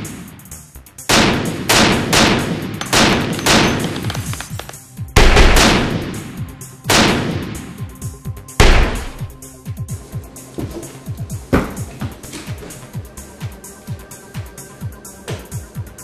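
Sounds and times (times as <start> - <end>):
heavy echoing gunshots: 0.0 - 0.5, 1.1 - 4.6, 5.2 - 7.8, 8.6 - 9.4.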